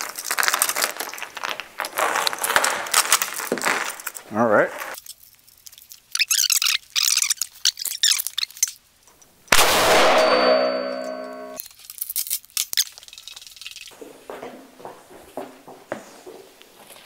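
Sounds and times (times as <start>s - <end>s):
gunshot: 9.5s - 11.6s
steel plate ringing: 9.7s - 11.6s.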